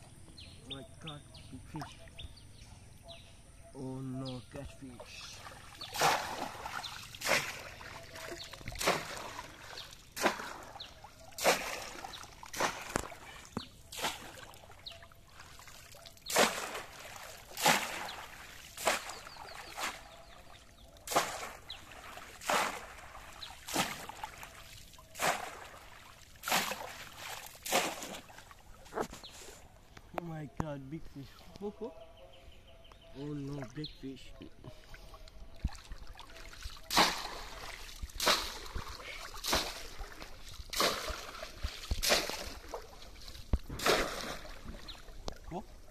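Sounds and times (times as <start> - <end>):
fish trap splashing into water: 5.7 - 14.8, 15.6 - 20.2, 21.0 - 28.4, 35.6 - 45.6.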